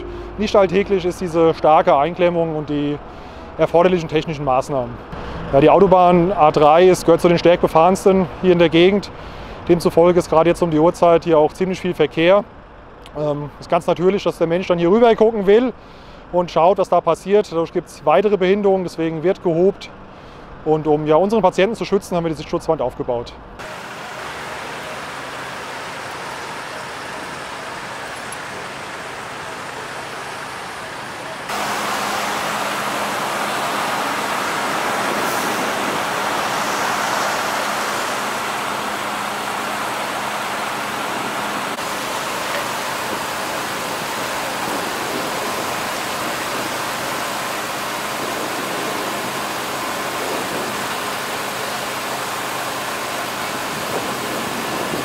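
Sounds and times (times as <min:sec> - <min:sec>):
low hum: 0:00.0 - 0:03.6
road traffic noise: 0:00.0 - 0:55.0.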